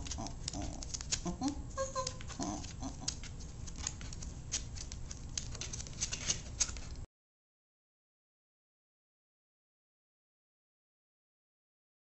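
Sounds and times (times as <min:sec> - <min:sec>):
low steady hum: 0:00.0 - 0:07.1.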